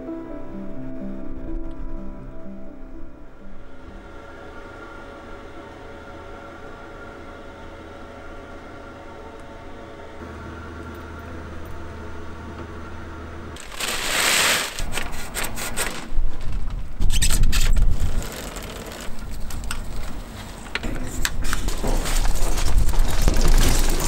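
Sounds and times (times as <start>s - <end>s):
mechanical hum: 0.0s - 24.0s
bag rustling: 13.6s - 16.6s
bike clicks and rattles: 13.6s - 24.0s
low rumbles: 16.0s - 24.0s.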